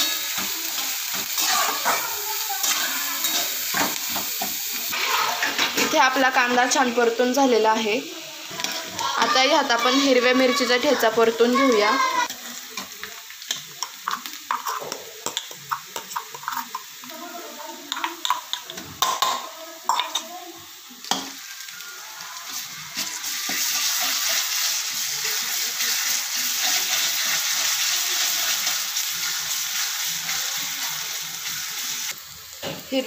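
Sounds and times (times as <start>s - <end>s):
spatula scraping and stirring: 0.0s - 6.0s, 8.5s - 9.2s, 12.2s - 17.0s
frying sizzle: 0.0s - 33.0s.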